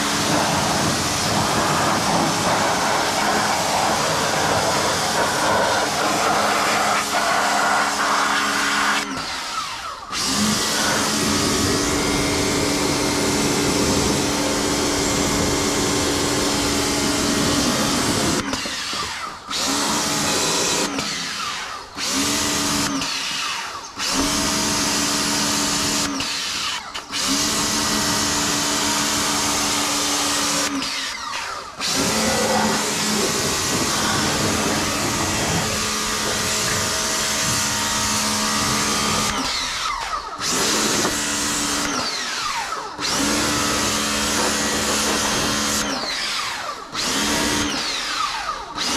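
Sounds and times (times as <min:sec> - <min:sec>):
pressure washer motor hum: 0:00.0 - 0:48.9.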